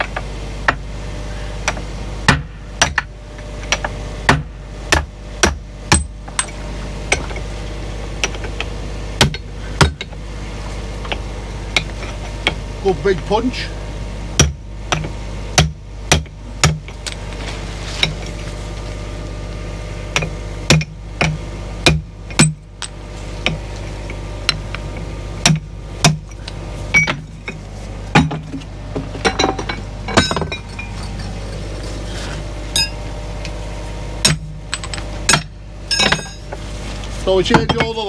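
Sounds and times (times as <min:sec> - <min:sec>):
low hum: 0:00.0 - 0:38.0
hammer striking steel punch: 0:34.2 - 0:36.4.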